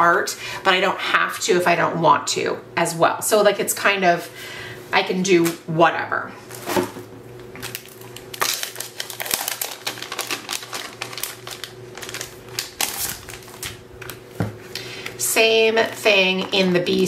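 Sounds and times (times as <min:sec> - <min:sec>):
paper and plastic packaging crinkling: 0:06.5 - 0:15.0, 0:15.7 - 0:17.0.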